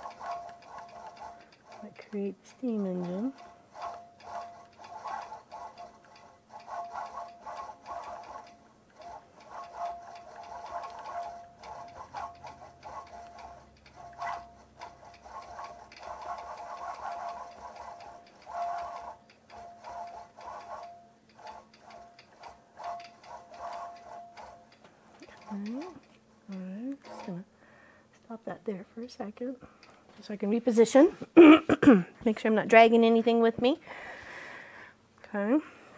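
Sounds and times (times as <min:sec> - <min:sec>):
machine motor tone: 0:00.0 - 0:26.0
quilting machine needle ticking: 0:00.0 - 0:27.5.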